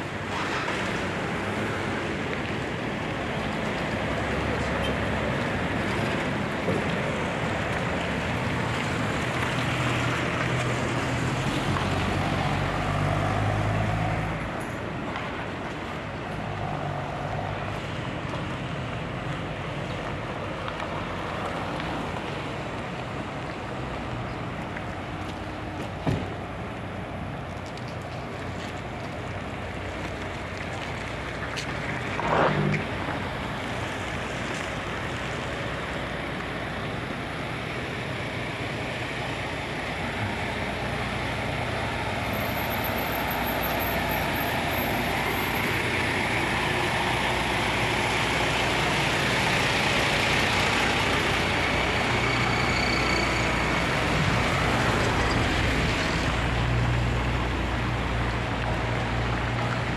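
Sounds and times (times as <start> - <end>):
street noise: 0.0 - 59.9.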